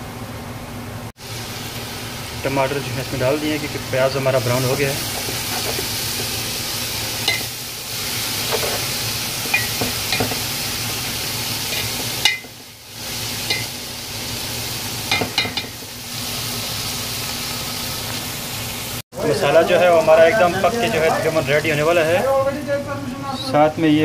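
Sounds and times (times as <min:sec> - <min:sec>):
food sizzling in oil: 0:01.2 - 0:24.0.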